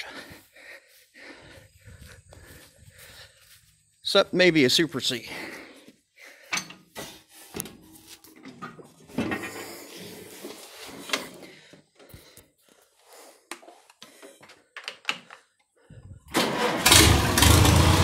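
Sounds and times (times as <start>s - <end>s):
knocks clinks and rattles on tractor: 6.4s - 7.1s, 7.7s - 11.4s, 16.3s - 18.0s
shuffling noise: 7.0s - 8.4s, 9.5s - 11.4s.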